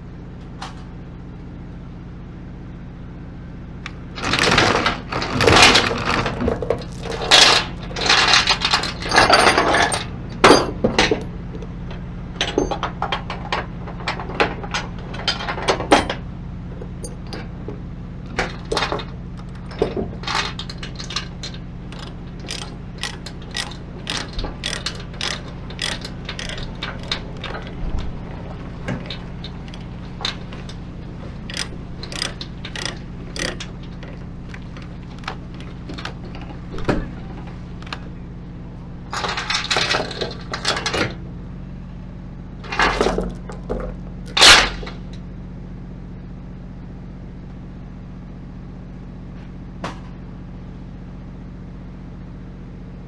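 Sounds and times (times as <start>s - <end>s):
low hum: 0.0s - 45.4s
chain clanking and rattling: 3.9s - 11.3s, 11.9s - 16.2s, 18.3s - 38.1s, 39.1s - 41.2s, 42.6s - 45.0s
ratchet binder clicking: 21.9s - 27.8s, 31.5s - 36.5s.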